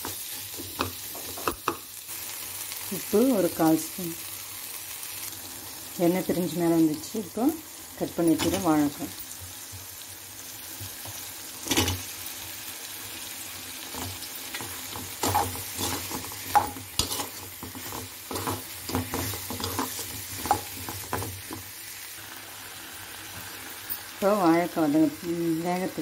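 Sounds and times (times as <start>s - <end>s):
plantain sizzling in hot oil: 0.0s - 26.0s
steel spoon scraping pan: 14.5s - 21.2s.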